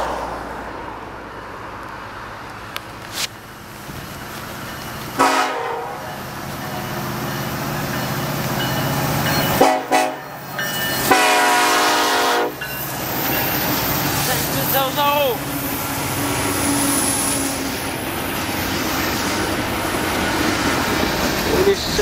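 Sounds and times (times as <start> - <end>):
diesel locomotive rumble: 0.0 - 22.0
train horn blasts: 5.2 - 6.2, 9.5 - 10.4, 11.0 - 12.6.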